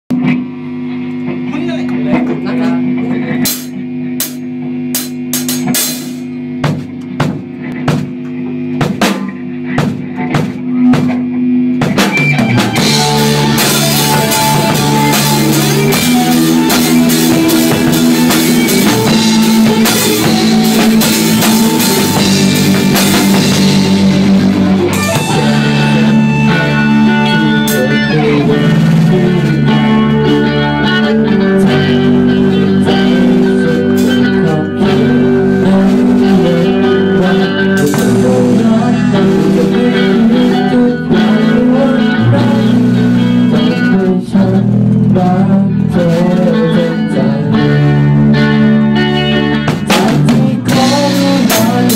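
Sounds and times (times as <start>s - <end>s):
rock band playing live: 0.1s - 51.9s
drum hits: 3.4s - 30.1s, 37.8s - 41.5s
held guitar chord: 10.6s - 51.9s.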